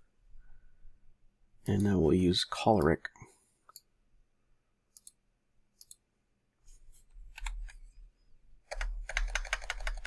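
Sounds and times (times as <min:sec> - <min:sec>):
computer mouse clicks: 0:03.6 - 0:03.9, 0:04.9 - 0:05.2, 0:05.8 - 0:06.1, 0:07.3 - 0:07.9.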